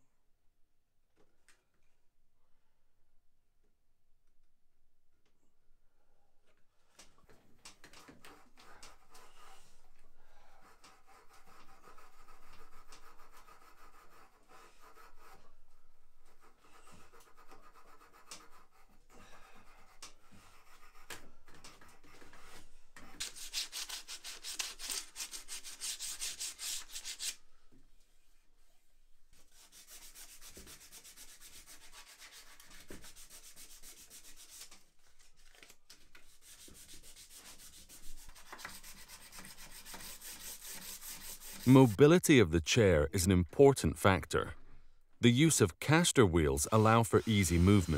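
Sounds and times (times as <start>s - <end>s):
hand sanding wood: 10.6s - 15.5s, 16.3s - 19.0s, 21.8s - 27.4s, 29.4s - 34.8s, 36.3s - 42.1s, 46.7s - 47.9s.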